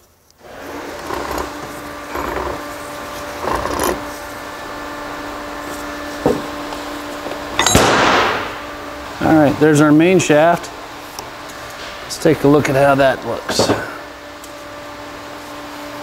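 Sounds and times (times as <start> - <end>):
steady hum: 0.0 - 16.0
metal parts scraping and clinking: 0.7 - 2.6, 3.4 - 4.2
sharp metal clank: 7.6 - 8.6.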